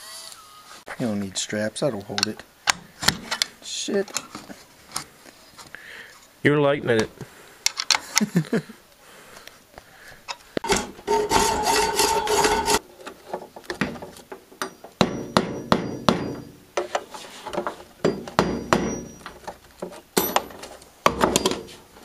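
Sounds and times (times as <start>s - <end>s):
hammer striking nail: 15.0s - 16.5s, 18.0s - 19.1s.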